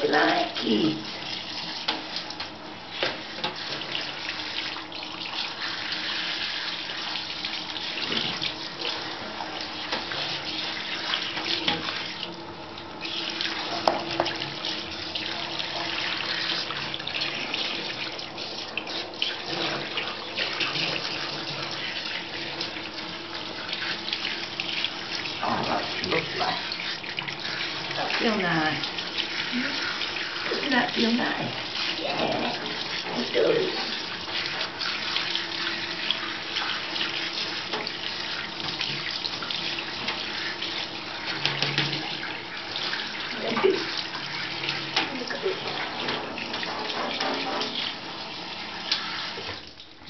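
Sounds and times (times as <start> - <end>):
shower spray running: 0.0 - 49.8.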